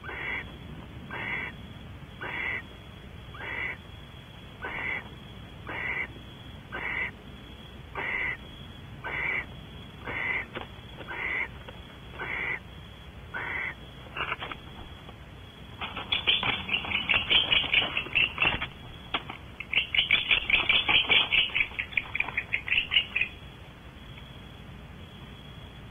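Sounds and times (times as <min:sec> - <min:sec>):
owl chittering twitters: 0:00.0 - 0:00.4, 0:01.1 - 0:01.5, 0:02.2 - 0:02.6, 0:03.3 - 0:03.8, 0:04.6 - 0:06.1, 0:06.7 - 0:07.2, 0:08.0 - 0:08.4, 0:09.0 - 0:11.6, 0:12.2 - 0:12.6, 0:13.3 - 0:14.6, 0:15.8 - 0:19.0, 0:19.6 - 0:23.4
owl hissing snore calls: 0:00.0 - 0:00.4, 0:01.1 - 0:01.5, 0:02.2 - 0:02.6, 0:03.4 - 0:03.8, 0:04.6 - 0:05.0, 0:05.7 - 0:06.1, 0:06.7 - 0:07.2, 0:08.0 - 0:08.4, 0:09.0 - 0:10.5, 0:11.1 - 0:11.5, 0:12.2 - 0:12.6, 0:13.3 - 0:14.4.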